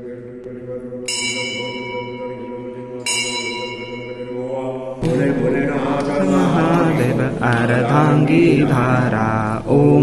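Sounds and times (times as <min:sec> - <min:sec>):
chanted mantra singing: 0:00.0 - 0:10.0
droning devotional music: 0:00.0 - 0:10.0
metal bell ringing: 0:01.1 - 0:04.6.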